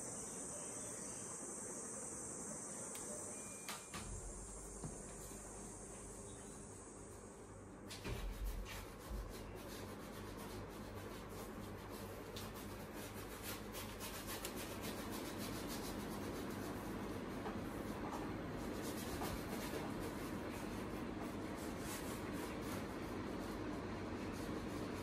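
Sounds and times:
paintbrush scrubbing on board: 8.0 - 25.0.

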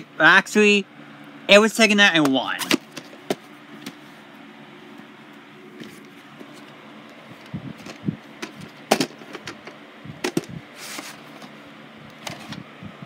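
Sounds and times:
sliding rustle: 10.3 - 11.6.

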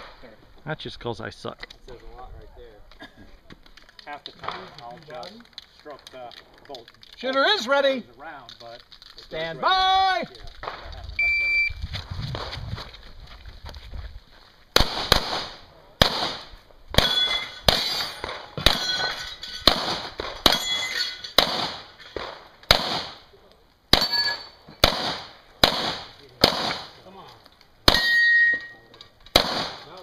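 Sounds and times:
steel target ringing clang: 17.0 - 19.8, 20.5 - 21.4, 24.0 - 24.6, 27.9 - 28.9
handgun shots: 21.4 - 23.2, 24.8 - 26.9, 29.3 - 29.9.

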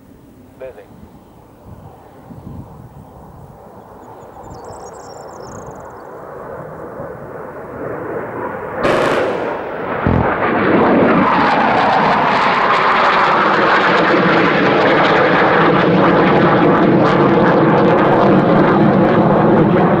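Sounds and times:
jet engine roar: 5.6 - 20.0
short sharp burst: 8.8 - 10.8
low thud: 8.9 - 10.6.

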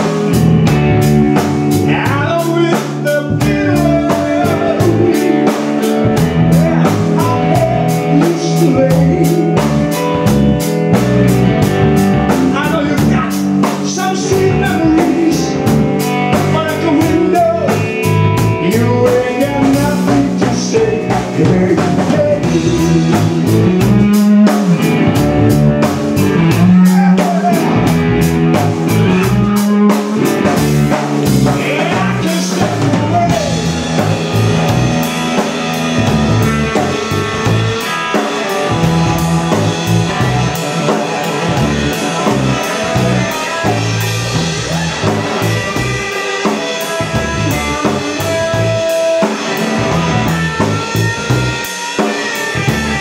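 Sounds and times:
drum kit: 0.0 - 53.0
electric bass: 0.0 - 53.0
electric guitar: 0.0 - 53.0
man singing into a microphone: 1.8 - 9.9, 12.5 - 15.7, 16.3 - 18.0, 18.6 - 24.9, 26.5 - 27.9, 31.5 - 33.9.

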